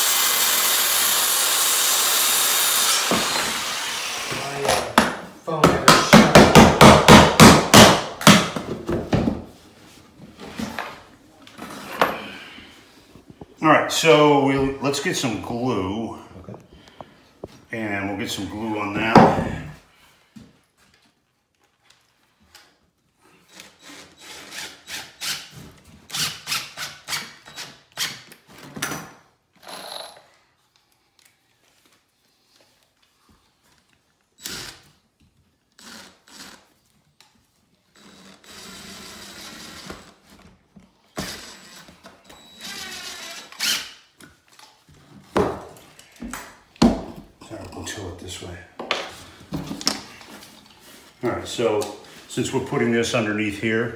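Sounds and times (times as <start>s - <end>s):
cordless drill driving a screw: 0.0s - 4.4s, 23.4s - 25.5s, 34.4s - 35.0s, 35.7s - 36.8s, 37.9s - 40.2s, 41.2s - 44.0s.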